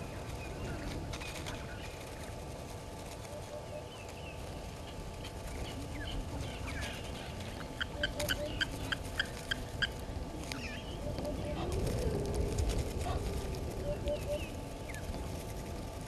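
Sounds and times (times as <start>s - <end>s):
low outdoor rumble: 0.0s - 16.0s
sharp clicking bird calls: 3.2s - 11.7s, 13.8s - 15.2s
birds chirping: 3.2s - 15.6s.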